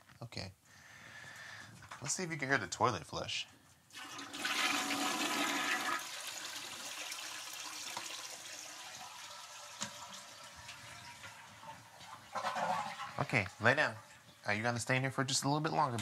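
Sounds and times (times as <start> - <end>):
toilet flushing: 3.9 - 14.7.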